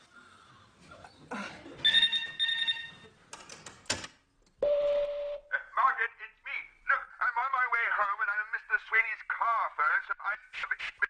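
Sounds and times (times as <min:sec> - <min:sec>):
telephone bell ringing: 0:01.9 - 0:03.0
steady telephone tone: 0:04.6 - 0:05.5.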